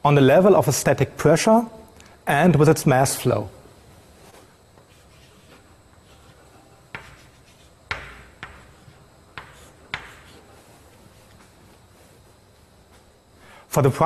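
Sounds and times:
chalk tapping and scratching on chalkboard: 0:04.2 - 0:11.5.

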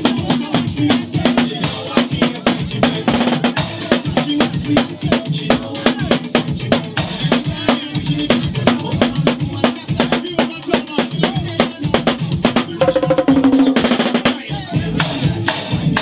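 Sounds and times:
drum kit fast groove: 0:00.0 - 0:16.0
tambourine struck with sticks: 0:12.8 - 0:14.2.

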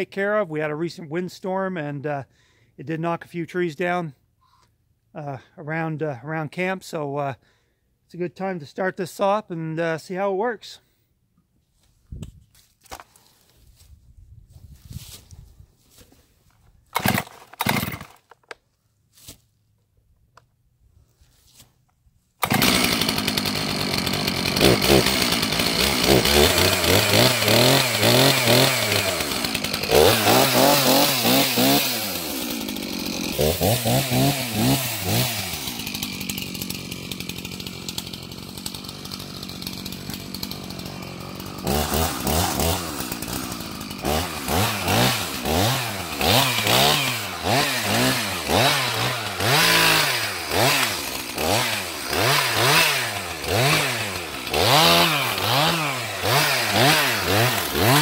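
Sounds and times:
chainsaw revving and idling: 0:16.9 - 0:18.4, 0:22.4 - 0:58.0.

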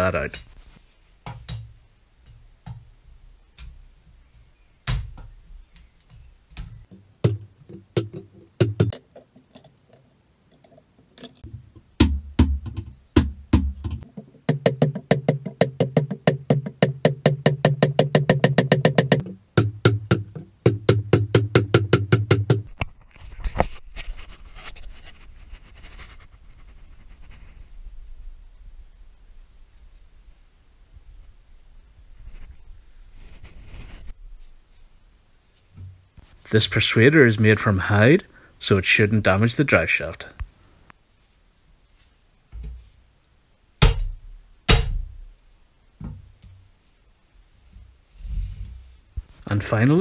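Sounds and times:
mallet striking driveshaft: 0:43.8 - 0:45.0.

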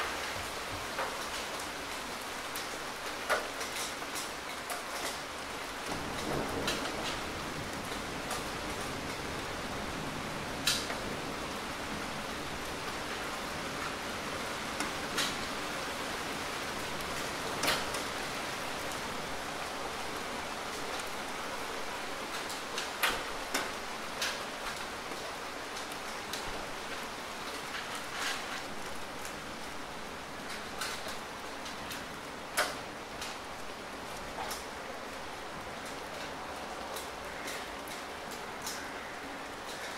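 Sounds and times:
sharp taps of raindrops: 0:00.0 - 0:09.3, 0:10.6 - 0:11.1, 0:14.7 - 0:15.8, 0:16.8 - 0:19.4, 0:20.6 - 0:29.8, 0:30.4 - 0:39.9
steady rain falling: 0:00.0 - 0:39.9.

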